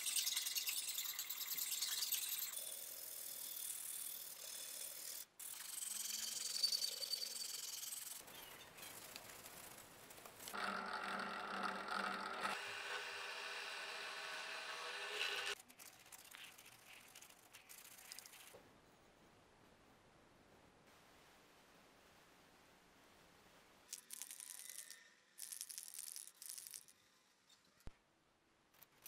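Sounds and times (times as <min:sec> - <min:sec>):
tools rubbing on wood: 0:03.4 - 0:08.3.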